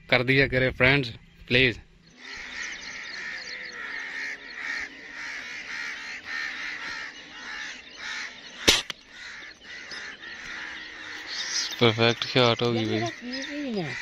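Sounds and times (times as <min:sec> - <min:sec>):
birds calling: 0:00.0 - 0:14.0
air rifle shot: 0:08.6 - 0:09.0.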